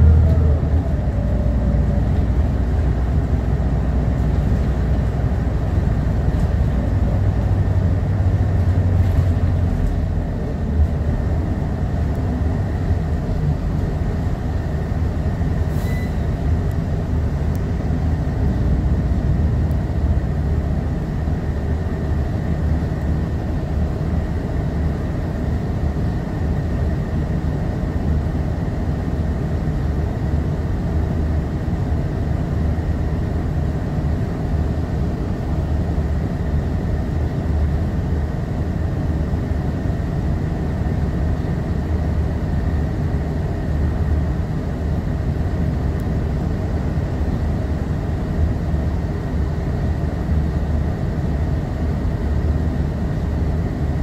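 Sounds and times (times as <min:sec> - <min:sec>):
bus diesel engine idling: 0:00.0 - 0:54.0.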